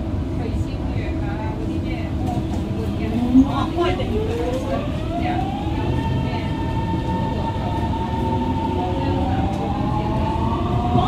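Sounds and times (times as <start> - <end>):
train running gear rumble: 0.0 - 11.0
train motors whining: 1.9 - 11.0.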